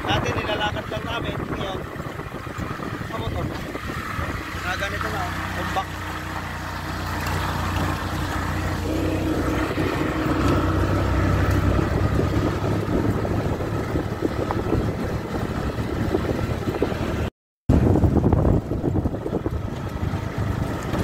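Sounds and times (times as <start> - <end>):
motorcycle engine running: 0.0 - 21.0
rattling over gravel road: 0.0 - 21.0.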